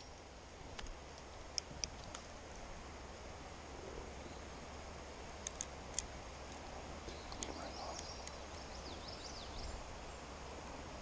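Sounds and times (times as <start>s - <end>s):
steady background hiss: 0.0s - 11.0s
sharp clicks: 5.4s - 8.5s
songbird whistling: 7.1s - 9.8s.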